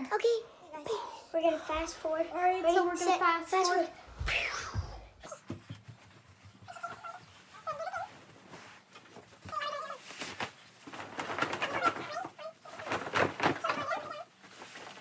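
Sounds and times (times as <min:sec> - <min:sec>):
sped-up children's voices: 0:00.0 - 0:05.8
bedding rustling: 0:01.4 - 0:15.0.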